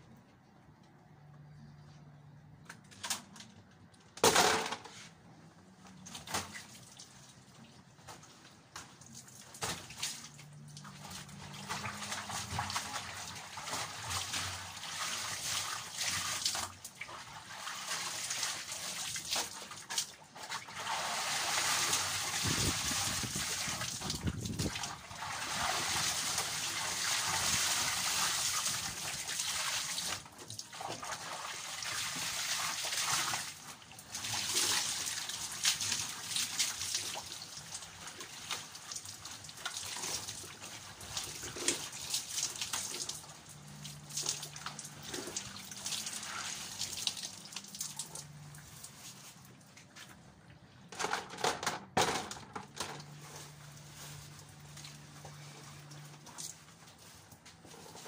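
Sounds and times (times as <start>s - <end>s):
water splashing in a basin: 5.9s - 49.6s.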